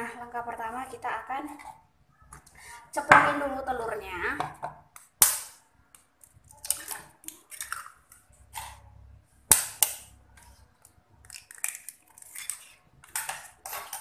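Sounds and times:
spoon cracking eggshells: 5.0s - 8.8s, 10.8s - 14.0s.

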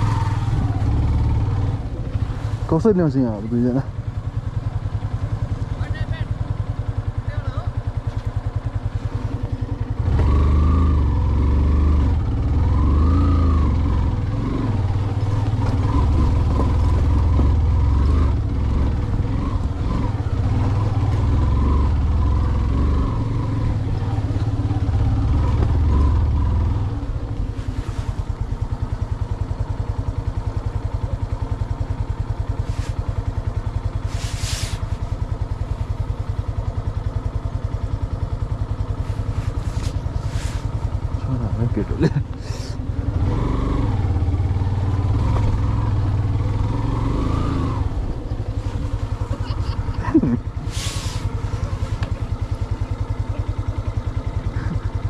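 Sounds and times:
motorcycle engine revving: 0.0s - 55.0s
short bursts of hiss: 34.0s - 34.9s, 50.7s - 51.3s.

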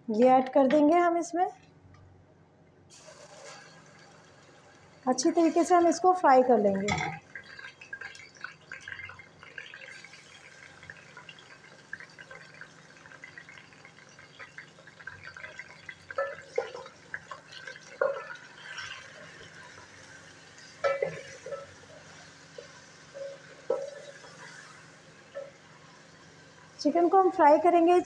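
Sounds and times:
chicken sizzling in oil: 2.9s - 6.2s, 7.2s - 27.6s.

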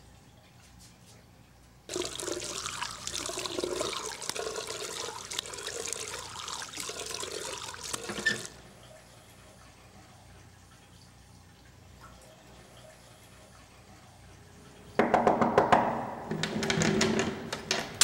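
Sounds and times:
splashing face washing: 1.9s - 8.6s
tap water running into sink: 1.9s - 8.6s.

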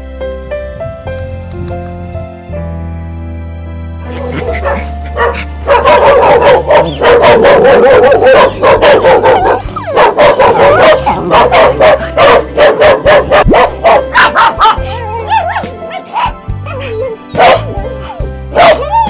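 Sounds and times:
dog whining: 9.3s - 11.5s.

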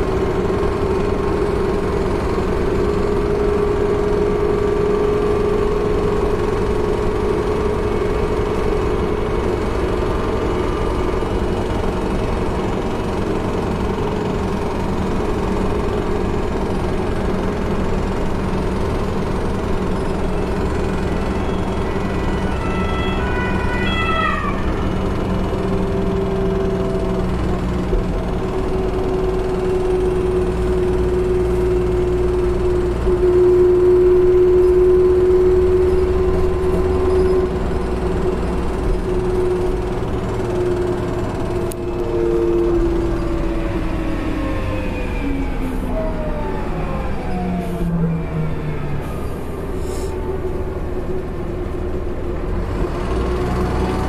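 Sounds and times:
bus engine running: 0.0s - 54.0s
second tone: 20.0s - 24.8s, 31.1s - 38.3s, 40.5s - 51.6s.

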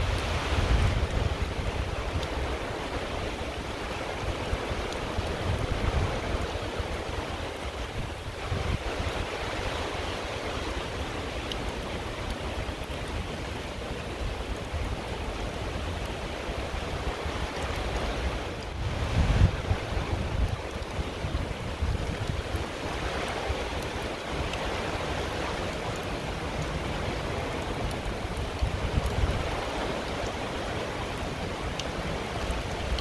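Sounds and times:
rain falling on water: 0.0s - 33.0s
wind on microphone: 0.0s - 33.0s.

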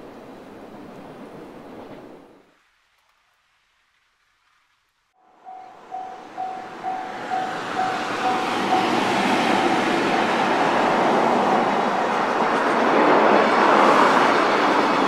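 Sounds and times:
level crossing warning bell: 5.2s - 12.4s
train wheels rumbling on rails: 5.4s - 15.0s.

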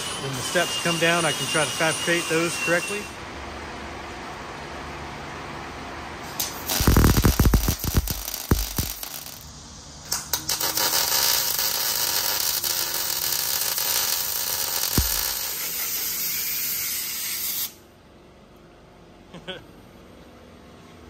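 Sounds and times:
welder arc crackling and hissing: 6.2s - 17.8s.

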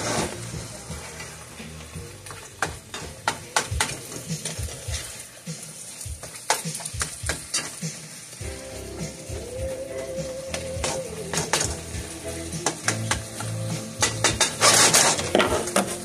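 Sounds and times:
utensil scraping a pan: 0.0s - 5.4s, 12.6s - 16.0s
meat and onions sizzling: 0.0s - 16.0s.

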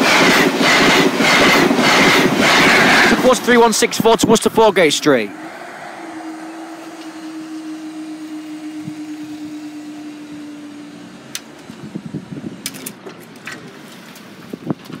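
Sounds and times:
barrier mechanism humming: 1.5s - 13.4s.

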